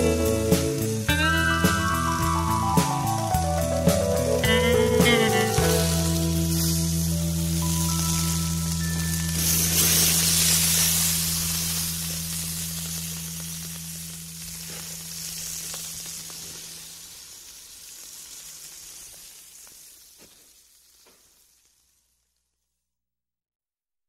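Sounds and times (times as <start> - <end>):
low held music notes: 0.0 - 16.8
sizzling hiss with crackles: 0.0 - 22.9.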